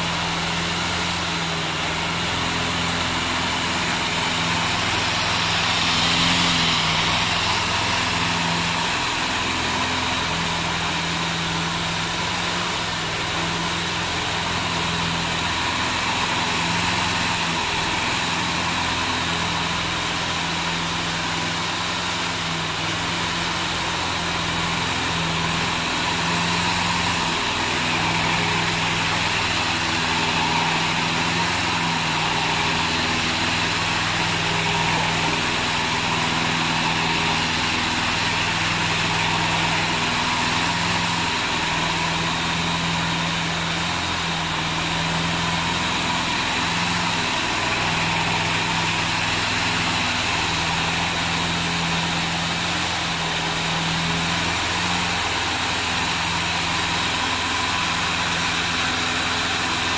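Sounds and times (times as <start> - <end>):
mower engine running: 0.0 - 59.9.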